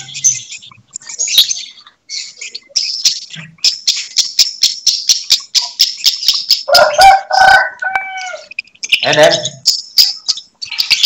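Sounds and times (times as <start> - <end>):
lovebirds chirping: 0.0 - 11.0
rooster crowing: 6.7 - 8.5.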